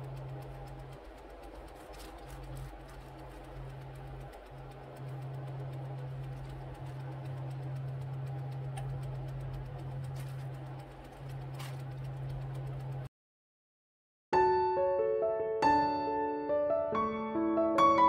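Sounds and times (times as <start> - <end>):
low mechanical hum: 0.0 - 13.1.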